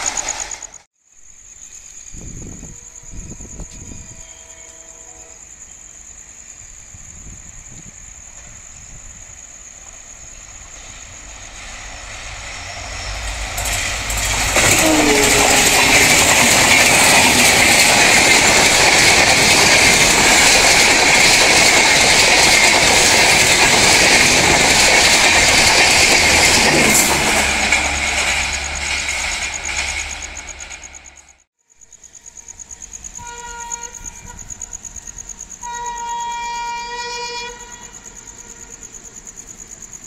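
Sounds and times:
train wheels rushing over rails: 0.0 - 0.9, 7.1 - 31.5
diesel locomotive rumble: 10.1 - 31.5.

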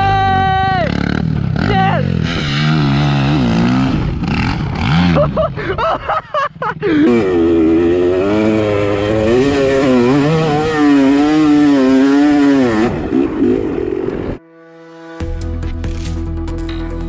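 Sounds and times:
dirt bike engine revving: 0.0 - 5.6, 6.8 - 14.4.

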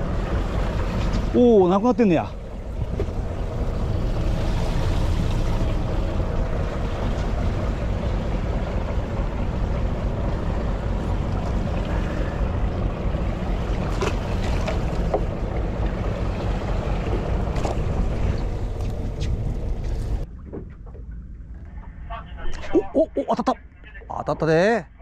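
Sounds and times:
boat engine running: 0.0 - 22.6
wind buffeting microphone: 2.1 - 20.3.

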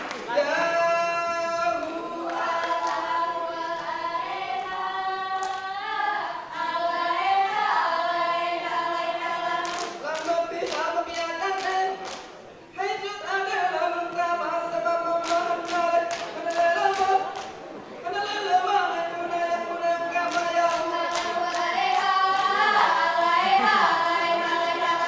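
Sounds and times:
sharp hand claps: 0.0 - 0.3, 9.6 - 12.4, 15.2 - 17.6, 20.3 - 22.8
women singing in unison: 1.7 - 11.8, 19.2 - 25.0.

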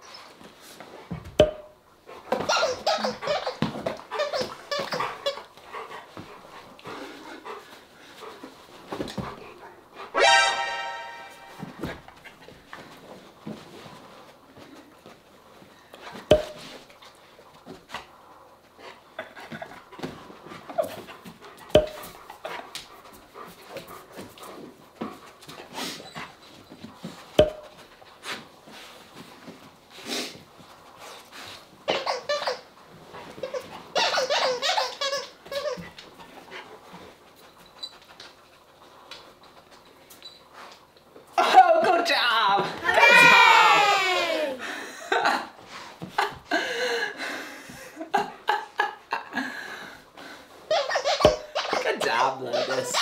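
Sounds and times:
dog panting: 2.0 - 10.2, 17.0 - 27.3, 28.0 - 41.0
dog whining: 2.4 - 5.5, 31.9 - 32.8, 33.4 - 35.9, 50.7 - 53.0.

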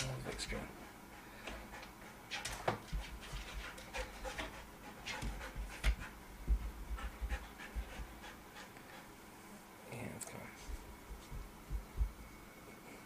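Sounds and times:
dog panting: 0.3 - 9.3.

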